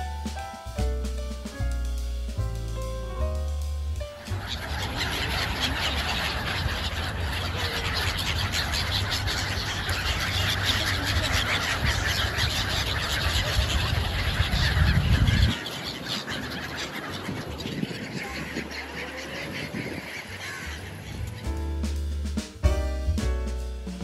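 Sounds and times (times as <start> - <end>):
flock of gulls calling: 2.8 - 22.0.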